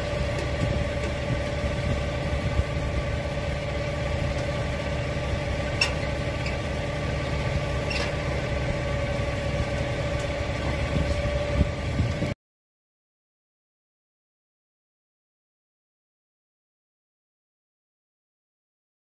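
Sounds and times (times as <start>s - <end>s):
diesel engine idling: 0.0s - 12.4s.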